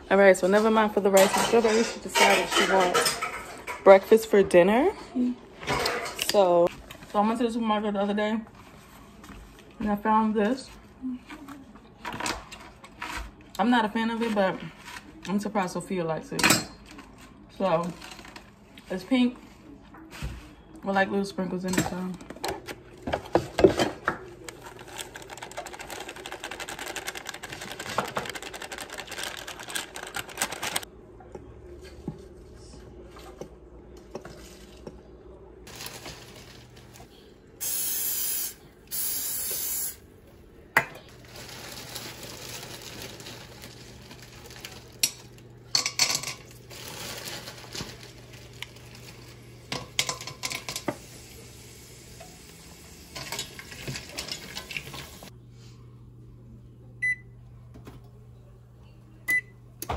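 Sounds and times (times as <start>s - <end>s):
utensils clinking against dishes: 0.4s - 4.4s, 5.6s - 6.6s, 16.2s - 18.5s, 21.2s - 28.8s, 44.2s - 48.2s, 49.6s - 51.0s, 53.1s - 55.1s
aerosol cooking spray bursts: 37.6s - 40.0s.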